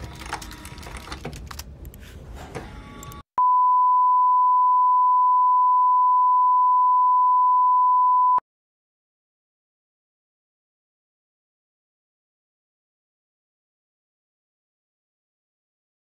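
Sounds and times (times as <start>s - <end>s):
steady electronic beep tone: 3.4s - 8.4s.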